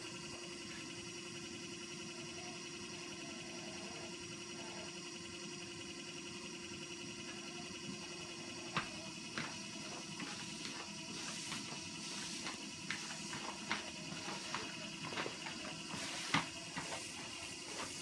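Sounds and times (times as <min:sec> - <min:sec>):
steady background hum: 0:00.0 - 0:18.0.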